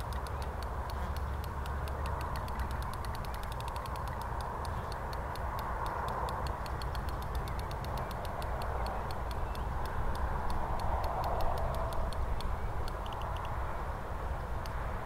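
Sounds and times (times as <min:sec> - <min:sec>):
fishing reel ticking: 0:00.0 - 0:13.5
steady rushing background: 0:00.0 - 0:15.0.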